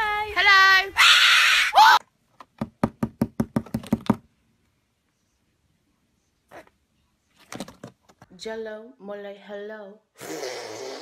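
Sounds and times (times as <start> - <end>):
knocks on cardboard box: 2.6 - 4.2.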